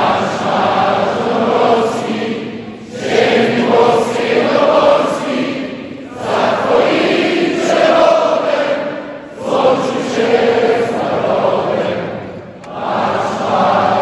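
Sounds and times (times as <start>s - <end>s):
crowd singing together: 0.0s - 14.0s.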